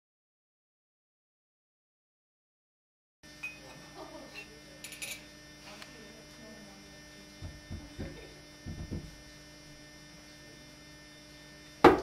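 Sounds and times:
electrical mains hum: 0:03.2 - 0:12.0
soft low thumps: 0:07.4 - 0:09.2.

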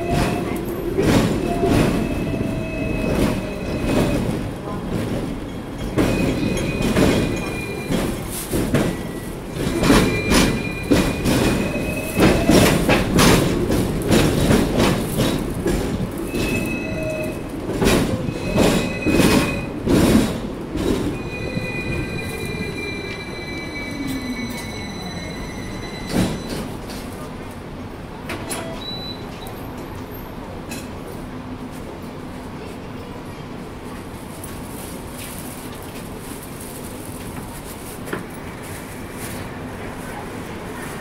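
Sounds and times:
tram rumbling on rails: 0:00.0 - 0:41.0
wheel squeals: 0:16.2 - 0:19.8.

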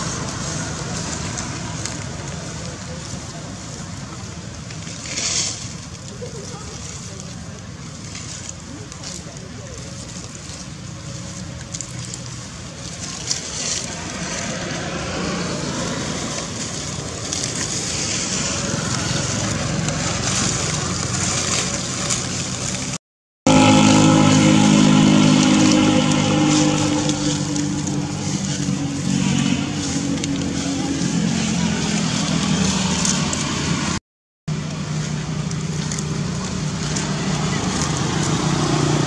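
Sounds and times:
motorcycle engine running: 0:11.2 - 0:39.0.

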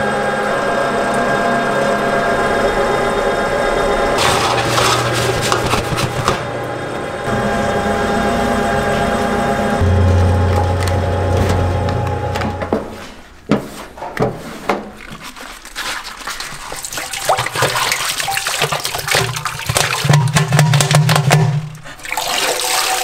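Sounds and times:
scraper knocking on metal tub: 0:04.2 - 0:06.4, 0:18.6 - 0:21.8
liquid pouring and splashing: 0:14.8 - 0:23.0.

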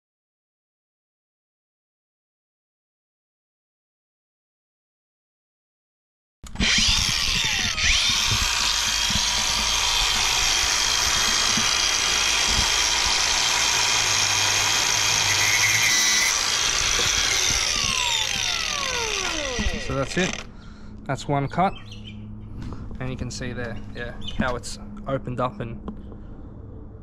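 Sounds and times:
angle grinder whining: 0:06.5 - 0:20.6.

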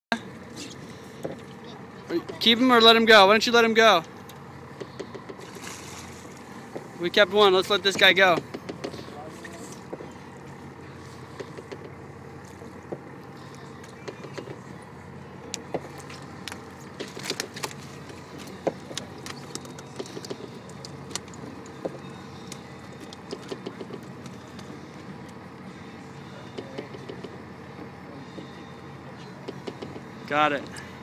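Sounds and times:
boat engine idling: 0:00.1 - 0:31.0
sharp clicks and knocks: 0:07.9 - 0:09.0, 0:18.4 - 0:24.7, 0:26.5 - 0:27.4, 0:29.4 - 0:30.1.

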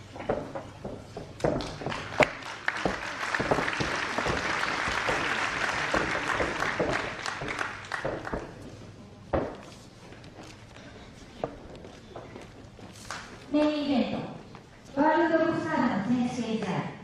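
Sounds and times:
audience applauding: 0:01.6 - 0:08.7.

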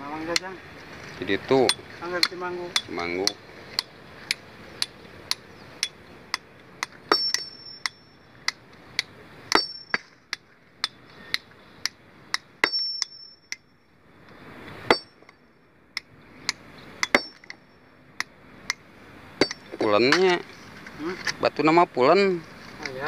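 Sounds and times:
hammer striking stone: 0:01.6 - 0:08.6, 0:09.5 - 0:13.6, 0:14.9 - 0:15.2, 0:16.5 - 0:17.6, 0:19.4 - 0:20.2.

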